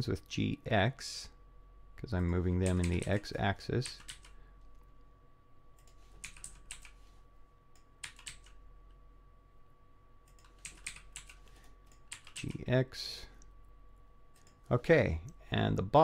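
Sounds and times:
faint steady hum: 0.0 - 16.0
keyboard keys clicking: 5.8 - 7.0, 8.0 - 8.6.

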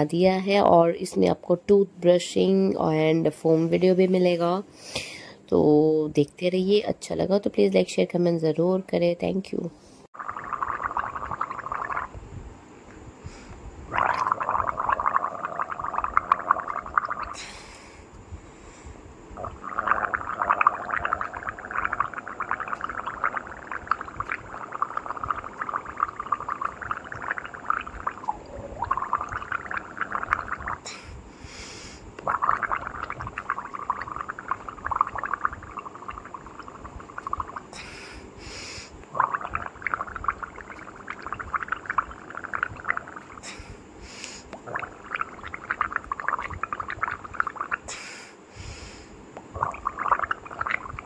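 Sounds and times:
person gargling: 10.2 - 12.2, 13.9 - 17.4, 19.4 - 30.9, 32.2 - 37.7, 39.1 - 43.4, 44.6 - 47.8, 49.5 - 51.0.

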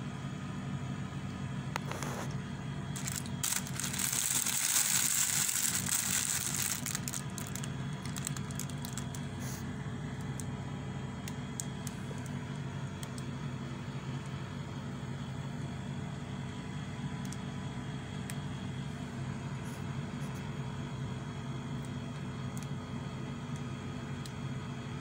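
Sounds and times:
steady low hum: 0.0 - 25.0
cellophane crinkling: 3.0 - 9.4.

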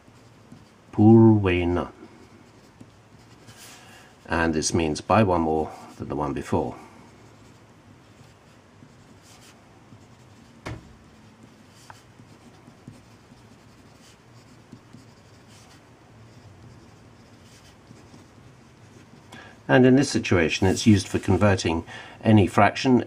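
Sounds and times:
pen scratching on paper: 0.0 - 0.9, 2.2 - 3.8, 7.2 - 19.4
pen tap: 10.6 - 10.9.

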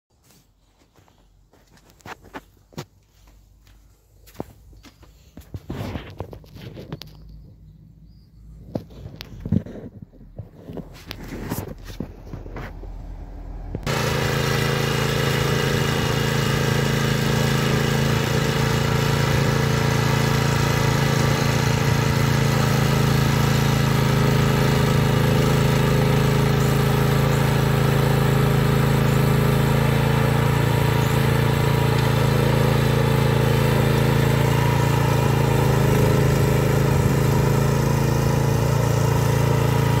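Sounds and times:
tractor engine under load: 13.7 - 40.0.

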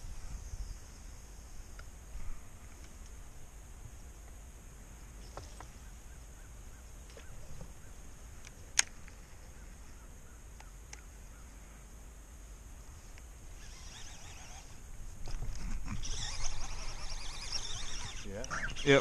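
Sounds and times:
distant bird calls: 4.8 - 11.9, 13.5 - 19.0.

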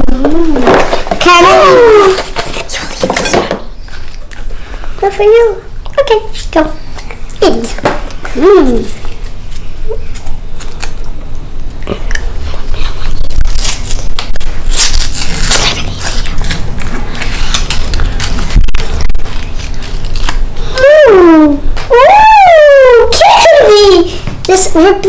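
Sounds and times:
paper wrapper crinkling and tearing: 8.4 - 11.2, 12.6 - 20.9.

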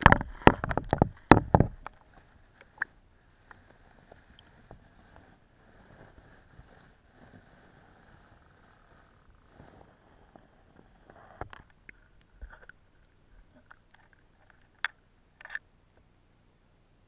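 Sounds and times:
camera clicks and knocks underwater: 0.0 - 2.9, 11.4 - 15.6.

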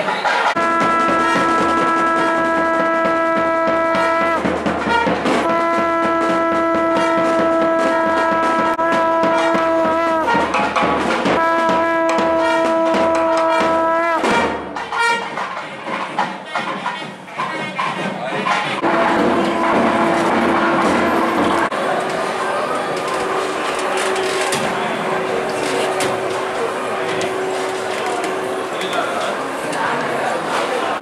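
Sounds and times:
percussion clatter: 0.0 - 31.0
conch shell blasts: 0.5 - 15.4, 18.8 - 21.8, 22.8 - 29.3.

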